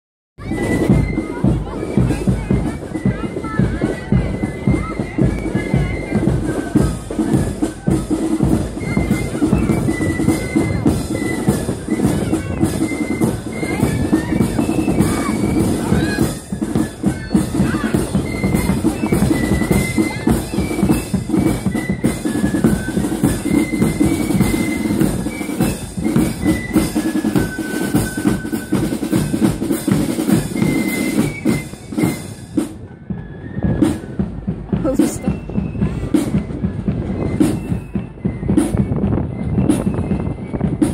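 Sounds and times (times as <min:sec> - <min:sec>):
side drums: 0:00.4 - 0:40.9
high melody line: 0:00.5 - 0:32.7.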